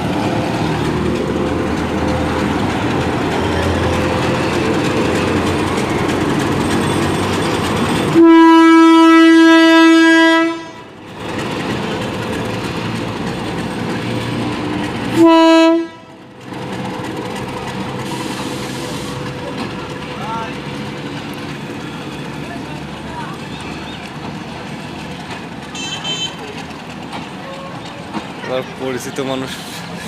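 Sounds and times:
diesel locomotive engine running: 0:00.0 - 0:30.0
train horn blasts: 0:08.1 - 0:10.9, 0:15.1 - 0:16.2, 0:25.7 - 0:26.4.

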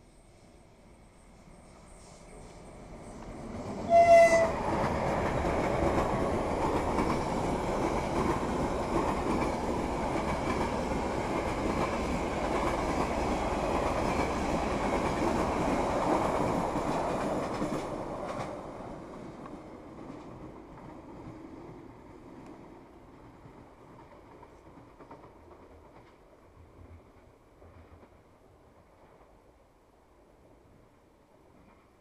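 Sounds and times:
train wheels clattering on rails: 0:03.2 - 0:18.8, 0:23.4 - 0:26.4
train horn blast: 0:03.9 - 0:04.6.

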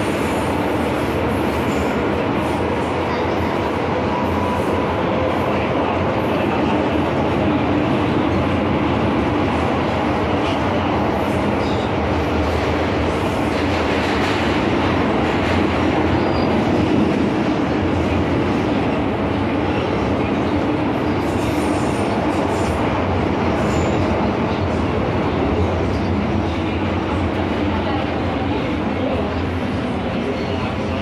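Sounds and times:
train wheels rumbling on rail: 0:00.0 - 0:31.0.

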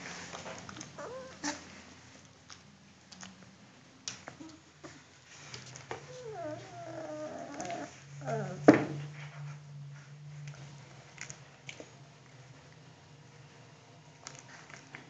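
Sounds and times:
puppies whining: 0:00.8 - 0:01.7, 0:06.0 - 0:08.8.

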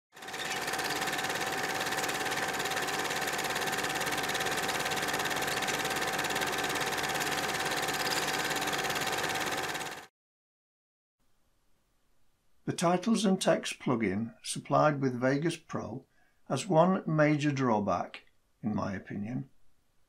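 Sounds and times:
film projector clatter and whir: 0:00.1 - 0:10.1.

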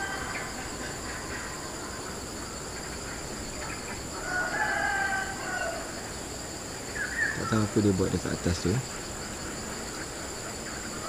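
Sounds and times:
rooster crowing: 0:00.0 - 0:02.0, 0:04.1 - 0:06.0
high insect buzz: 0:00.0 - 0:11.0.

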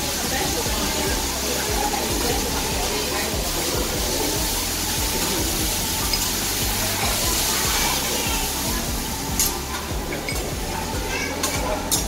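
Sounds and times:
chicken sizzling on a griddle: 0:00.0 - 0:12.0
restaurant murmur: 0:00.0 - 0:12.0.

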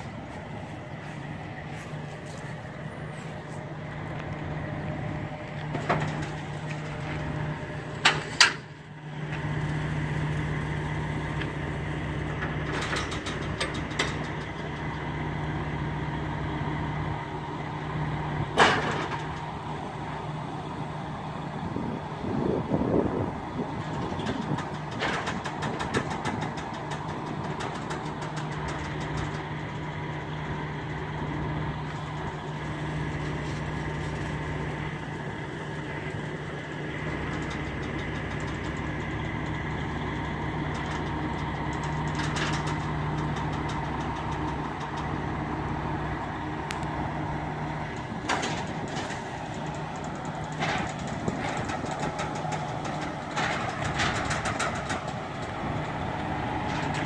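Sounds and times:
truck engine idling: 0:00.0 - 0:57.0.

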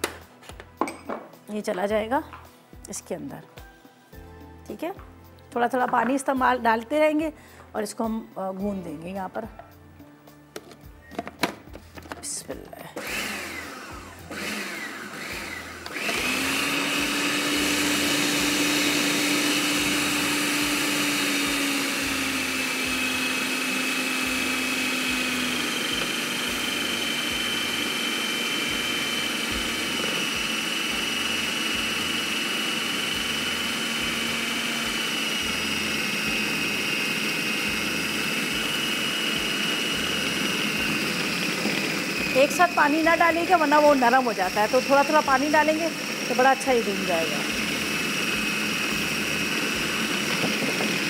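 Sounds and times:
food processor motor: 0:13.0 - 0:51.0.

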